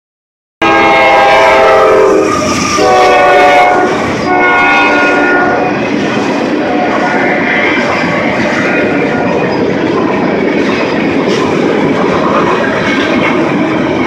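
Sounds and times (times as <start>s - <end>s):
locomotive air horn: 0.6s - 5.8s
train rumble: 0.6s - 14.0s.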